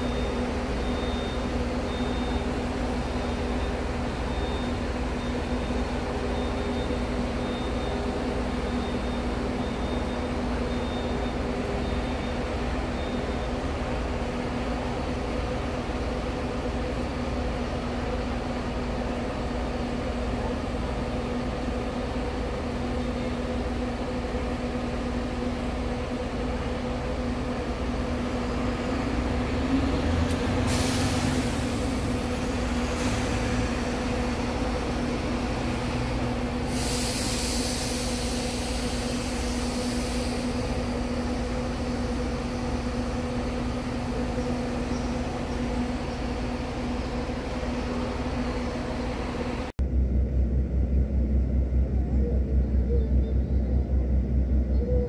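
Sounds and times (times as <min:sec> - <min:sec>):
diesel bus engines humming: 0:00.0 - 0:55.0
air brake hissing: 0:30.6 - 0:33.8, 0:36.5 - 0:42.2.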